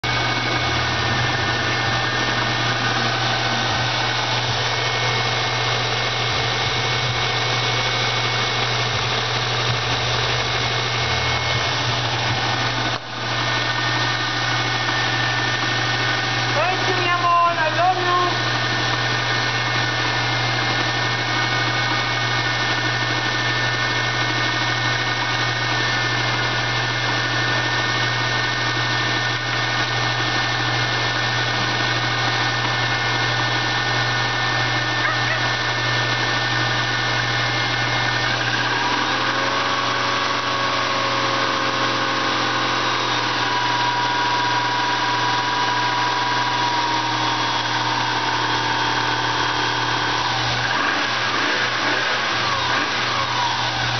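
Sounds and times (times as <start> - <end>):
car engine idling: 0.0 - 27.9.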